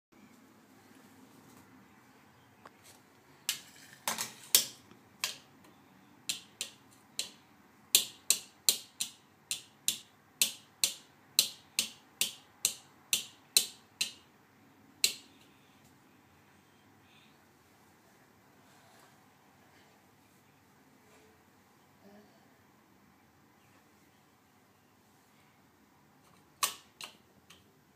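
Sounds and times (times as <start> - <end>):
brush tapping plastic palette: 6.2 - 7.4, 8.0 - 14.3.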